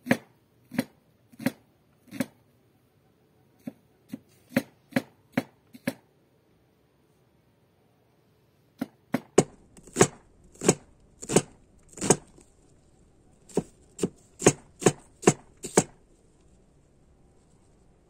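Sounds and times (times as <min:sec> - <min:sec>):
cleaver chopping on wooden board: 0:09.2 - 0:12.4, 0:13.5 - 0:16.0.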